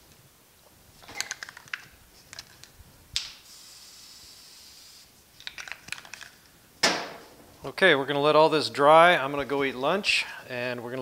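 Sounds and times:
spray can hissing: 3.2 - 5.5
aerosol can rattling: 5.4 - 6.4.

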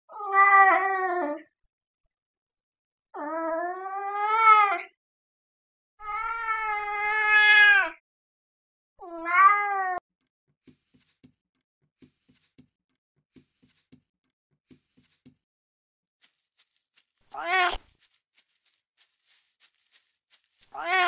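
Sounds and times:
cat meowing: 17.3 - 17.8, 20.7 - 21.0.

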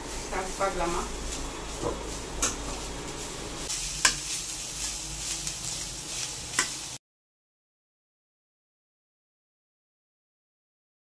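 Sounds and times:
food sizzling in oil: 0.0 - 7.0
spoon stirring in pan: 0.0 - 7.0.

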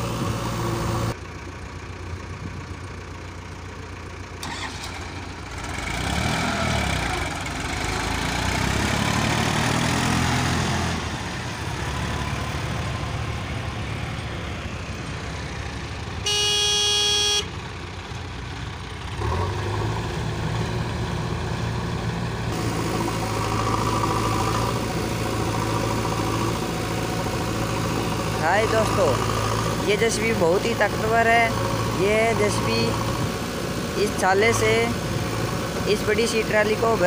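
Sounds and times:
diesel tractor engines revving: 0.0 - 37.0
vehicle horn: 16.2 - 17.6.

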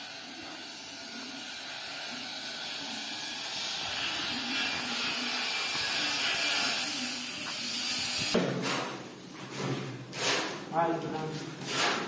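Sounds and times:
steady hiss: 0.0 - 8.4.

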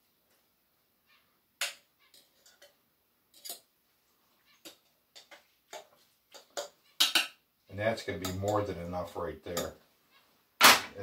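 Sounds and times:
fork clinking on skillet and plate: 1.6 - 3.7, 4.6 - 7.3, 9.5 - 9.8.

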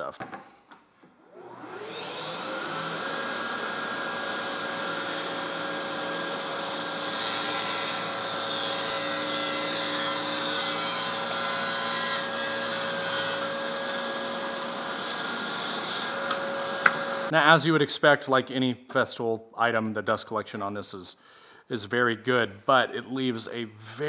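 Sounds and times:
table saw cutting plywood: 1.3 - 17.3
dust extractor running: 1.4 - 7.2, 12.6 - 17.3.

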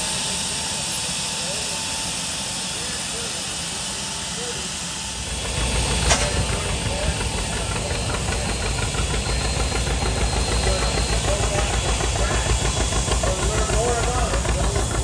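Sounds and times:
engine chugging: 0.0 - 15.0.

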